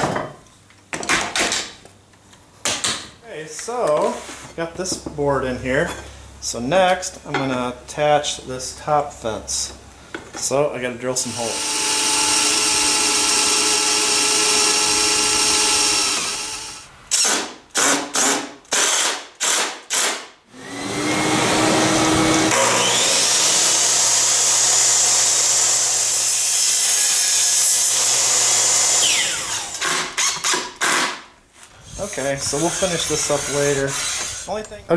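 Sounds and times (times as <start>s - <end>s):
power tool spinning: 11.3s - 17.3s, 20.6s - 31.0s, 31.9s - 34.6s
drill boring through metal: 11.3s - 31.0s, 32.0s - 34.6s
impact driver driving screws: 11.6s - 20.3s, 29.1s - 31.2s.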